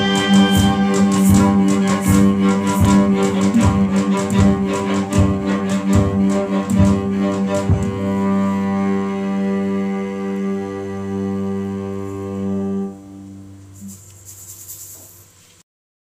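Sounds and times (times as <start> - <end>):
steady beat: 0.0 - 9.2
string ensemble holding a chord: 0.0 - 13.8.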